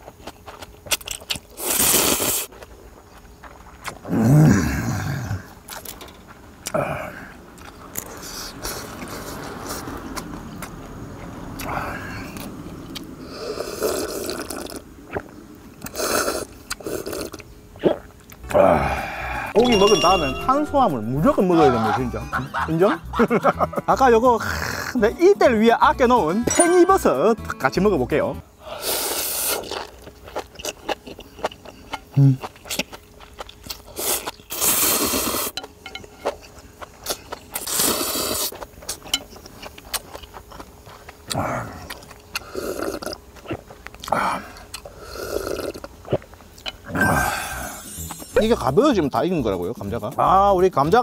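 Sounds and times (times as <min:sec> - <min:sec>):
person chewing: 0:00.0 - 0:04.4, 0:06.6 - 0:10.9, 0:11.6 - 0:19.8, 0:28.8 - 0:48.5
person slurping noodles: 0:01.6 - 0:02.5, 0:13.2 - 0:14.8, 0:15.8 - 0:17.4, 0:28.7 - 0:29.9, 0:33.9 - 0:35.6, 0:37.1 - 0:38.6, 0:41.3 - 0:43.2, 0:44.1 - 0:45.9, 0:46.9 - 0:48.2.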